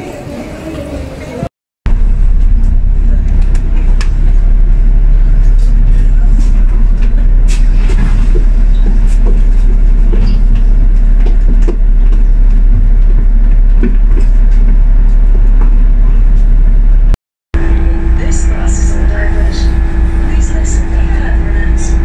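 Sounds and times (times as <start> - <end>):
buses idling: 0.0 - 22.0
road traffic rumble: 0.0 - 22.0.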